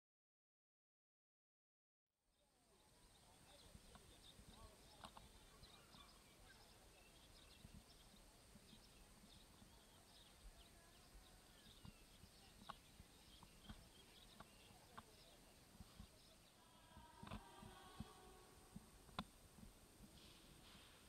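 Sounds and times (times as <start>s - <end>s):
soft clicks: 17.0s - 19.7s.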